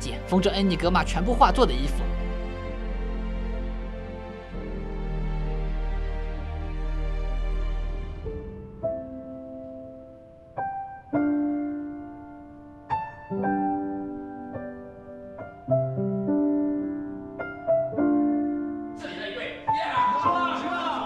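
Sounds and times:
slow solo piano: 0:08.2 - 0:19.0.

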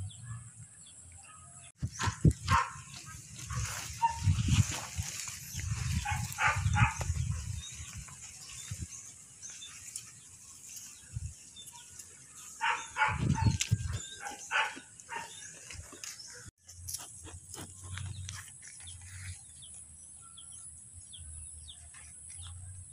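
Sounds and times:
goats snuffling against microphone: 0:15.2 - 0:19.7.

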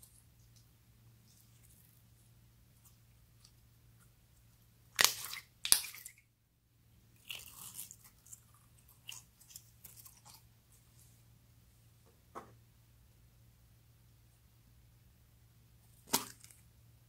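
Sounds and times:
slime crackling and popping: 0:04.9 - 0:06.2.

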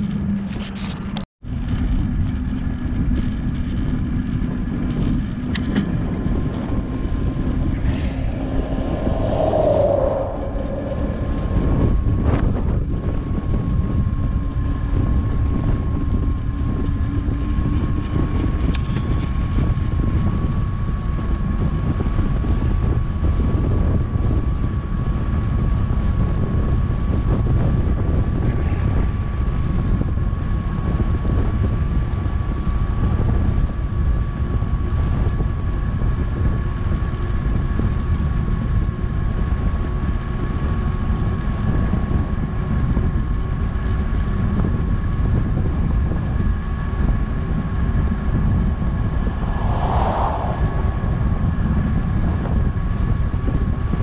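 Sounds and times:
wind rushing over microphone: 0:01.5 - 0:54.0
thin steady whine: 0:06.0 - 0:14.9.

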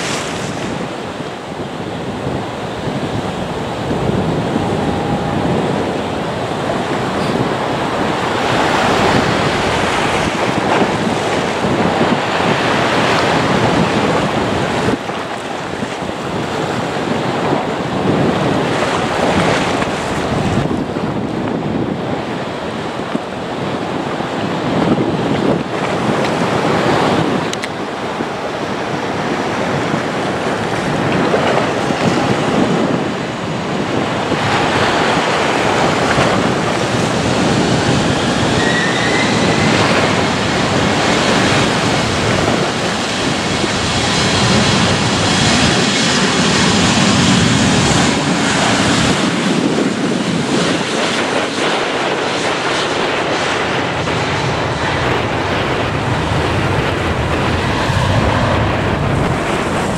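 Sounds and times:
jet engine whine: 0:00.0 - 0:59.9
wind on microphone: 0:00.0 - 0:59.9.

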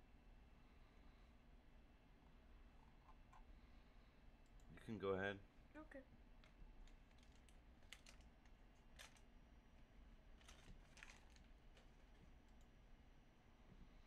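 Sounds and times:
low steady hum: 0:00.0 - 0:14.0
faint clicks: 0:04.4 - 0:04.8, 0:10.4 - 0:12.7.

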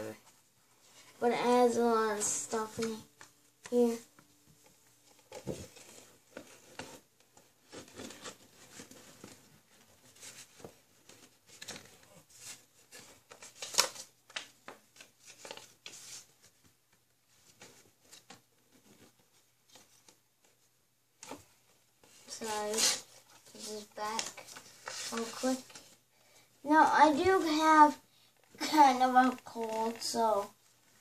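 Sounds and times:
cardboard packaging rustling: 0:04.6 - 0:20.6, 0:21.2 - 0:26.0.

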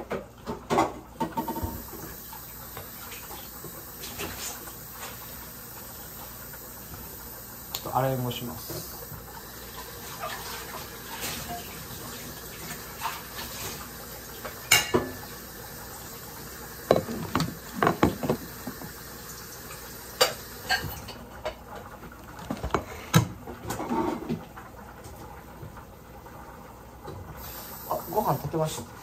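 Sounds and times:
utensils knocking against pot: 0:16.9 - 0:18.8.

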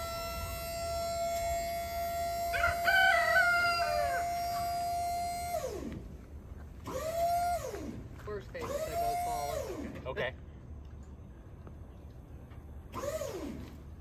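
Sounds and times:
hydraulic pump whining: 0:00.0 - 0:10.3, 0:12.8 - 0:14.0
rooster crowing: 0:02.5 - 0:04.9.

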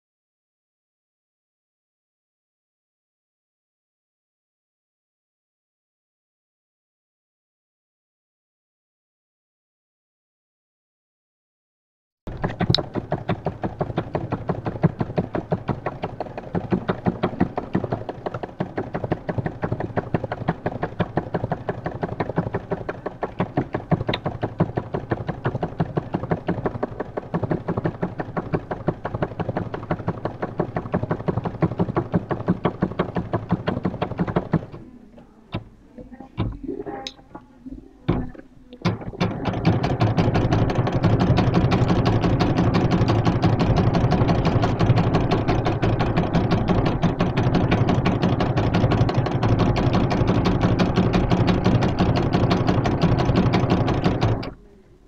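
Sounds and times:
separate knocks: 0:12.3 - 0:34.8, 0:35.4 - 0:54.6
sewing machine running: 0:12.3 - 0:34.8, 0:38.1 - 0:54.6.

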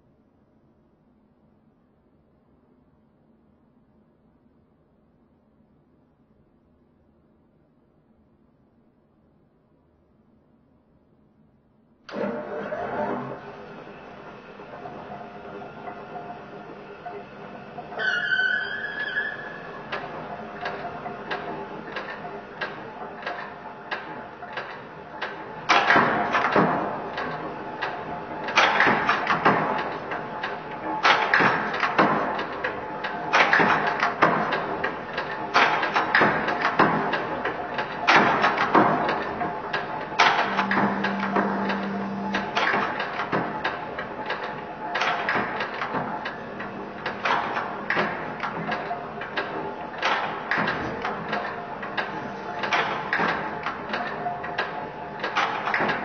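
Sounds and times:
low machinery hum: 0:12.1 - 0:56.0
power press clanking: 0:33.3 - 0:56.0.

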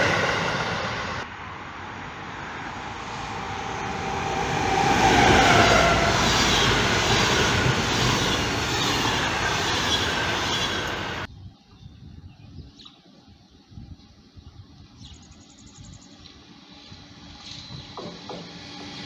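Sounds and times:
train wheels rolling on rails: 0:00.0 - 0:01.4, 0:02.1 - 0:11.3, 0:16.2 - 0:19.0.

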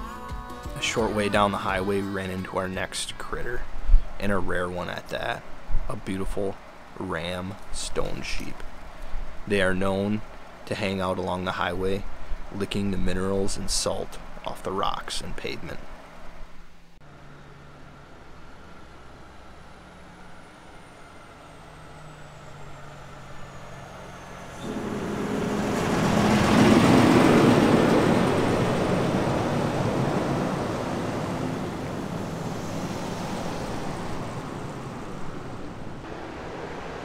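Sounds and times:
vehicle passing on highway: 0:15.7 - 0:37.0.

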